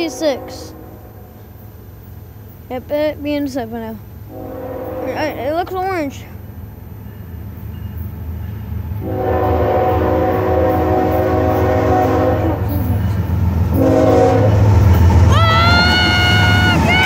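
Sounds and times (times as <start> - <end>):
locomotive air horn blasts: 0.0 - 1.3, 4.3 - 5.3, 9.0 - 13.1, 13.7 - 14.6
low rumble of train: 0.0 - 17.0.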